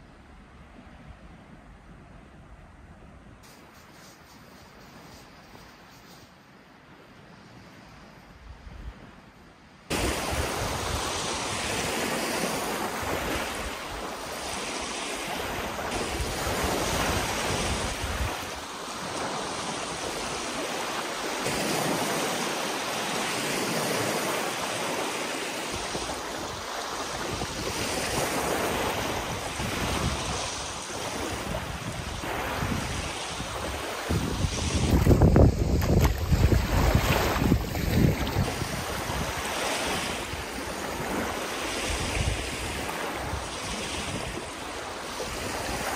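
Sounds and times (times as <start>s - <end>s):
small waves washing onto shore: 9.8s - 45.9s
wind buffeting microphone: 15.3s - 20.7s, 25.7s - 45.9s.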